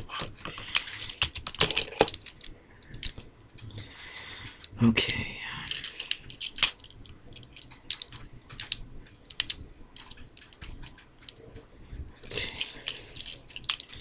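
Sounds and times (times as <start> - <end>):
plastic toy parts clicking: 0.0 - 3.8, 5.6 - 11.4, 12.1 - 14.0.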